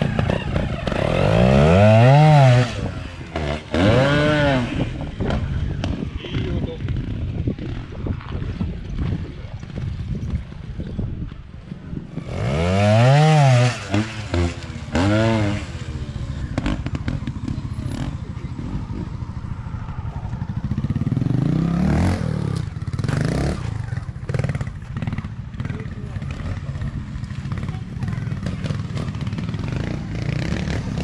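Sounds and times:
motorcycle engine revving: 0.0 - 11.2, 12.0 - 31.0
motorcycle engine idling: 15.6 - 21.7.

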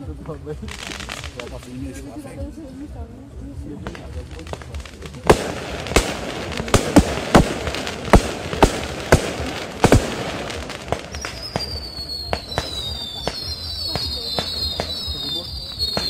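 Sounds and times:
firework bangs: 0.0 - 2.4, 3.7 - 16.0
whistling firework: 4.0 - 16.0.

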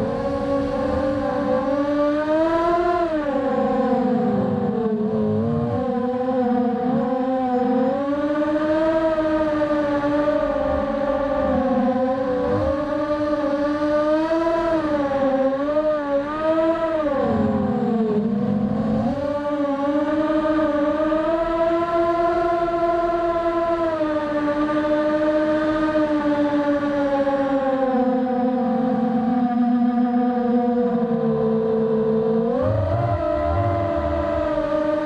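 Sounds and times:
drone motors whining: 31.2 - 35.0.

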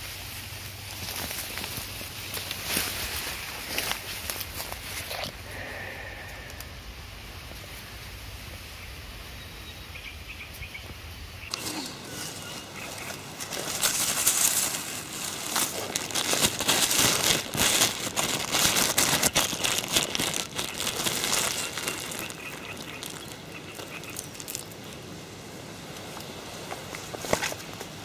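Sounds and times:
plastic bag crinkling: 11.5 - 25.0.

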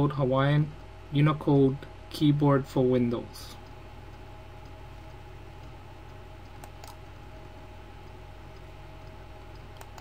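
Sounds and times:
electrical hum and hiss: 0.0 - 10.0
faint steady tones: 0.0 - 10.0
computer mouse clicks: 5.6 - 7.1, 8.1 - 10.0.

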